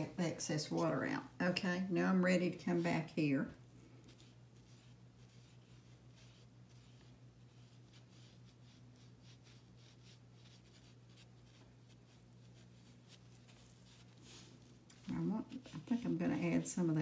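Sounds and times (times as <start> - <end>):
steady low hum: 0.0 - 17.0
paintbrush swishing on paper: 2.4 - 17.0.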